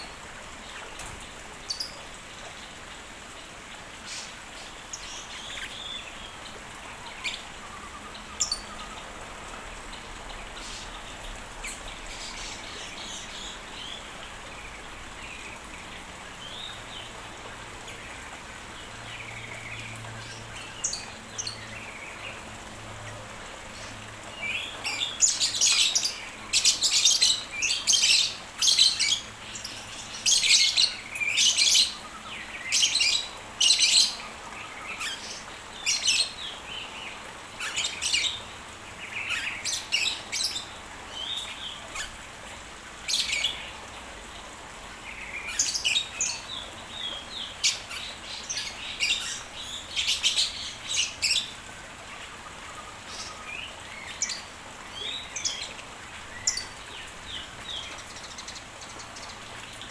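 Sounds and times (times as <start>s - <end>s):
birds chirping and calling: 4.0s - 22.6s, 23.7s - 42.3s, 43.0s - 59.9s.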